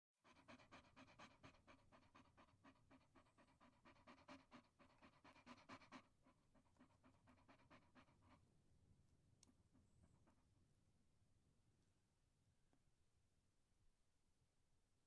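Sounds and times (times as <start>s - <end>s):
dog panting: 0.2s - 8.5s.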